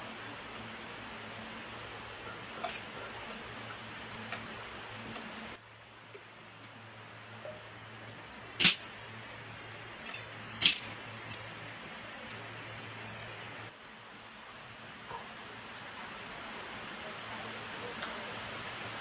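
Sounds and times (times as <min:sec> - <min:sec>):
low steady hum: 0:00.0 - 0:19.0
metal pieces clinking: 0:02.2 - 0:04.4, 0:08.0 - 0:13.4.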